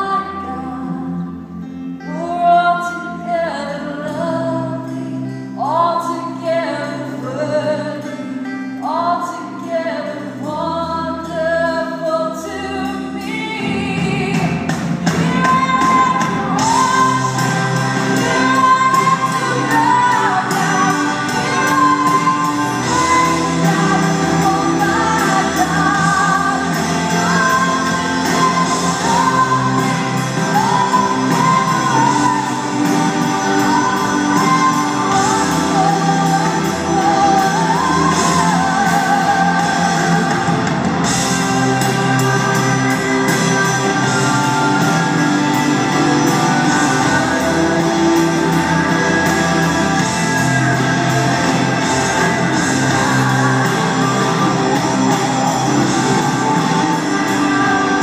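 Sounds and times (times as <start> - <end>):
woman singing: 0.0 - 58.0
worship band playing: 12.4 - 58.0.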